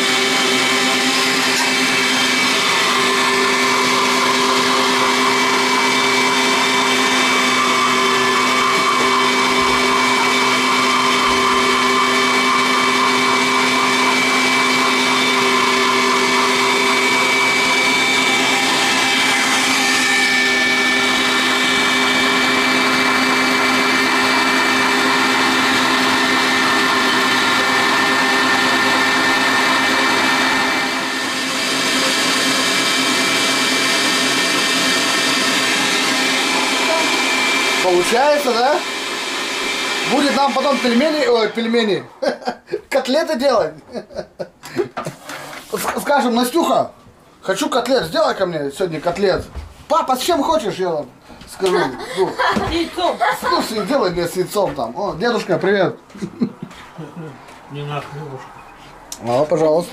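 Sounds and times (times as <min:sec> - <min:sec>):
electric meat grinder humming: 0:00.0 - 0:42.7, 0:51.6 - 0:55.6.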